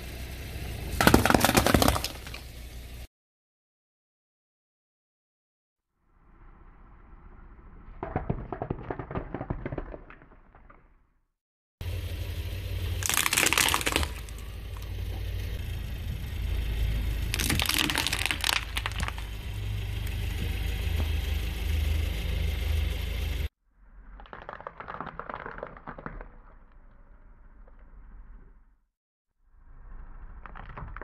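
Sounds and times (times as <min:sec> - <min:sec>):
car rumble: 0:00.0 - 0:03.1, 0:11.8 - 0:24.6
squishy balls bursting: 0:01.0 - 0:02.5, 0:08.0 - 0:10.8, 0:12.9 - 0:14.9, 0:17.3 - 0:19.5, 0:24.0 - 0:26.8
tyre crunching drink cans: 0:13.0 - 0:14.4, 0:17.3 - 0:19.3.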